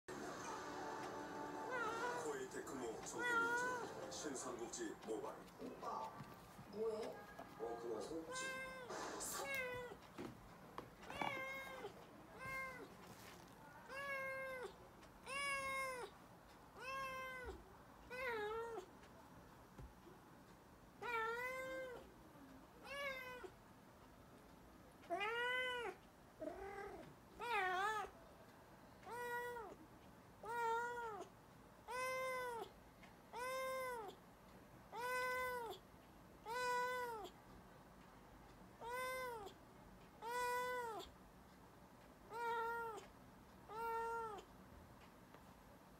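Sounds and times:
kitten meowing: 0:01.7 - 0:02.2, 0:03.2 - 0:03.9, 0:08.3 - 0:10.0, 0:11.1 - 0:12.9, 0:16.8 - 0:18.8, 0:30.4 - 0:31.3, 0:34.9 - 0:35.8, 0:36.5 - 0:37.3, 0:38.8 - 0:39.5, 0:40.2 - 0:41.1.

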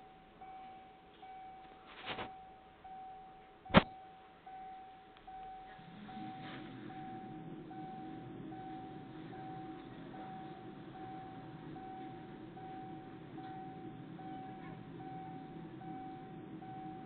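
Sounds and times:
level crossing warning bell: 0:00.0 - 0:17.0
train rumble: 0:05.3 - 0:17.0.

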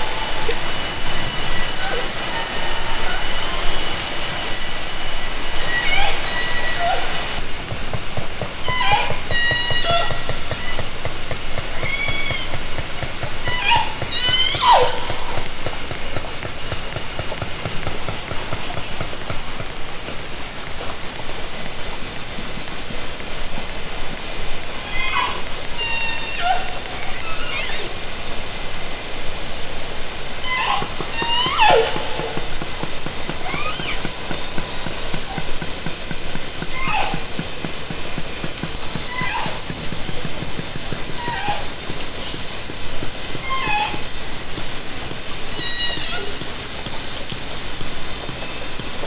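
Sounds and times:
killer whale call: 0:00.0 - 0:07.4, 0:08.6 - 0:19.3, 0:24.7 - 0:28.2, 0:30.4 - 0:35.8, 0:36.6 - 0:37.6, 0:38.6 - 0:40.5, 0:41.1 - 0:42.2, 0:43.3 - 0:44.2, 0:45.5 - 0:46.4
echolocation clicks: 0:00.0 - 0:28.2, 0:30.3 - 0:49.0
underwater hiss: 0:00.0 - 0:49.0.

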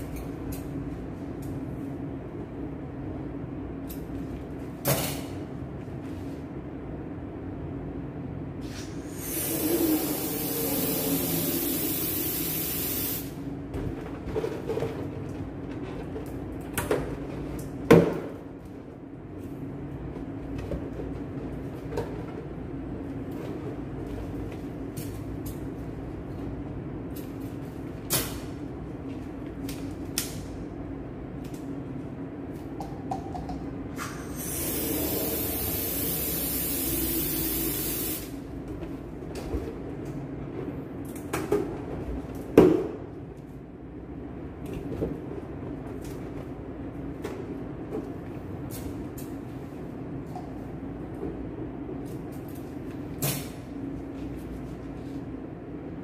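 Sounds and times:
helium hissing into balloon: 0:08.6 - 0:13.3, 0:34.2 - 0:38.3.

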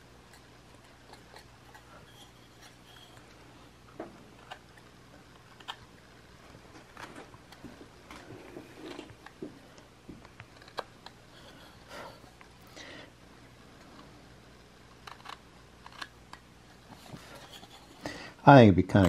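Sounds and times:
knife whittling wood: 0:00.3 - 0:03.4.

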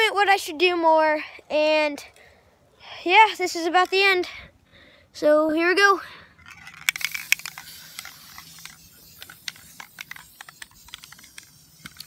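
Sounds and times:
faint hiss: 0:06.1 - 0:12.0.

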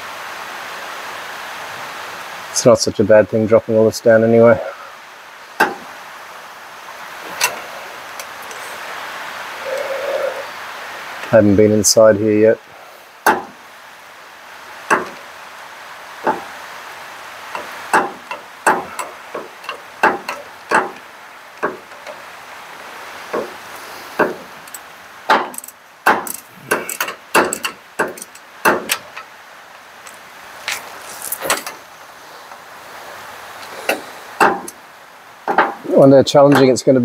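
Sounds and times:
wrench clicking against metal: 0:25.5 - 0:29.2.

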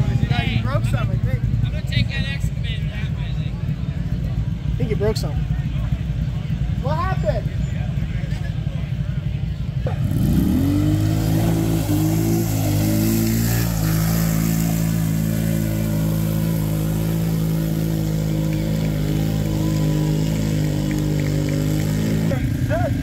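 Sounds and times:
atv engine revving: 0:00.0 - 0:23.0
wheels churning through mud: 0:09.6 - 0:23.0.

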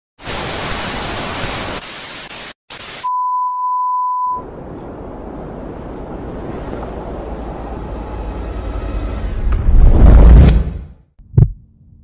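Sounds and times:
low rumbling noise: 0:04.4 - 0:12.0.

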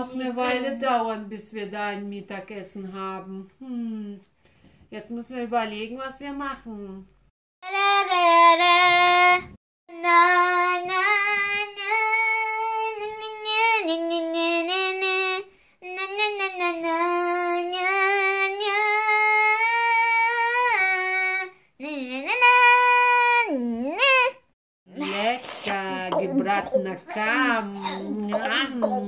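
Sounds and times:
child singing wordless tune: 0:07.6 - 0:25.2.

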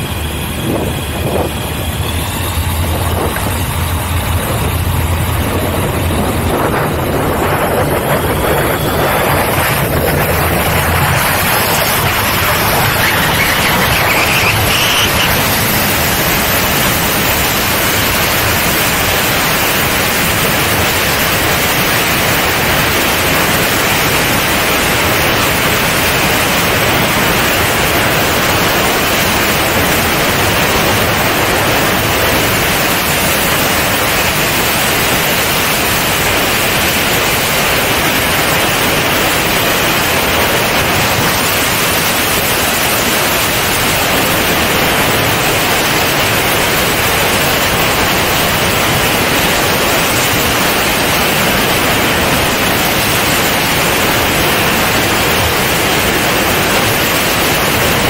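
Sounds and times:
airflow rushing over camera: 0:00.0 - 0:17.1.

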